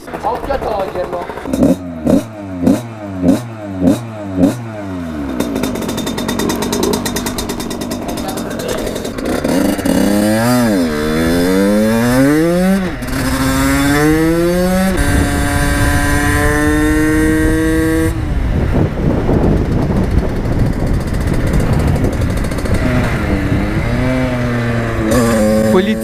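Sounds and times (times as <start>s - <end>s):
motorcycle engine accelerating: 0.0s - 26.0s
wind noise rushing: 9.2s - 26.0s.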